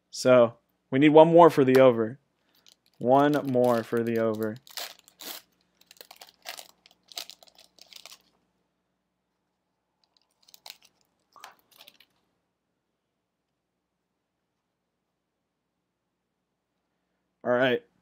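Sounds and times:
cards rustling: 0:02.4 - 0:08.4, 0:10.0 - 0:12.2
card pack wrapper crinkling: 0:02.5 - 0:08.4, 0:10.0 - 0:12.2.

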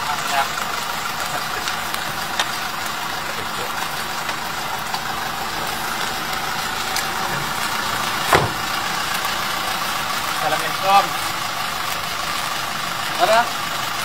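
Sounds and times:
car engine idling: 0:00.0 - 0:14.0
car door slamming: 0:08.2 - 0:08.9.

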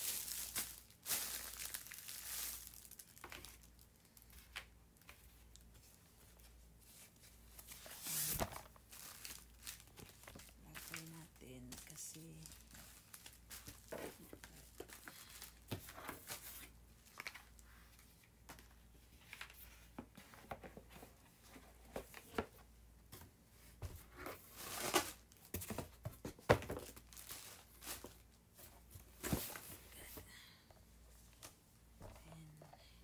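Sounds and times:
packaging rustling and crinkling: 0:00.0 - 0:06.0, 0:07.0 - 0:18.1, 0:24.4 - 0:30.0.

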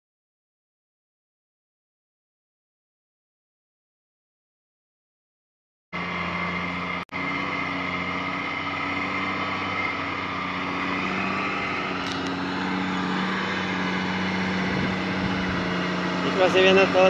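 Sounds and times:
diesel truck engine running: 0:06.0 - 0:17.0.

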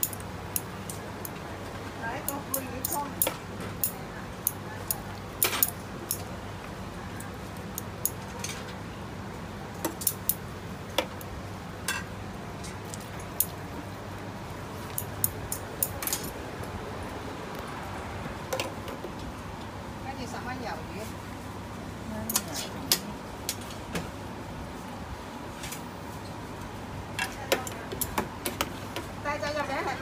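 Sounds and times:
metal utensils clinking on steel: 0:11.9 - 0:12.8.

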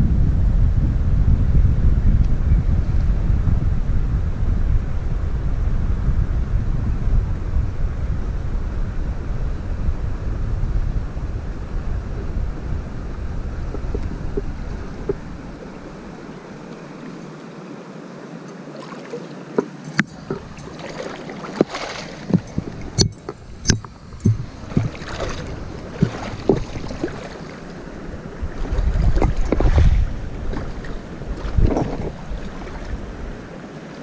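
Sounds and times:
river water running: 0:11.5 - 0:34.0
sharp knocks and splashes: 0:18.7 - 0:27.8, 0:28.5 - 0:33.0
low rumble: 0:21.7 - 0:33.5.

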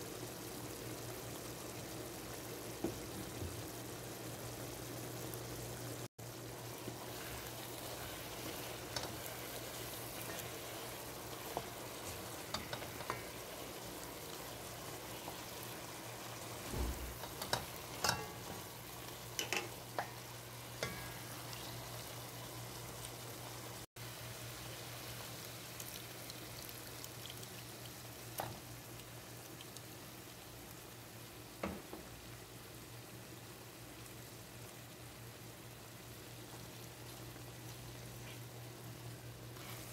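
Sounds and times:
meat sizzling in oil: 0:00.0 - 0:39.9
spoon knocking against pan: 0:17.2 - 0:18.6.

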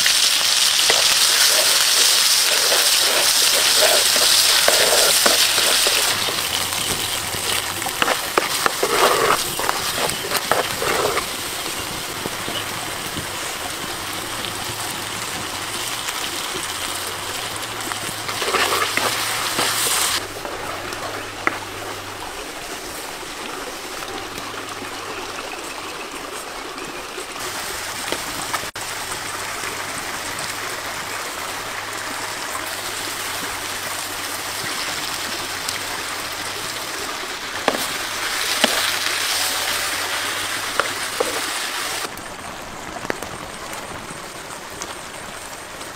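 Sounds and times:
sauce sizzling in a pan: 0:00.0 - 0:21.8, 0:32.7 - 0:42.1.

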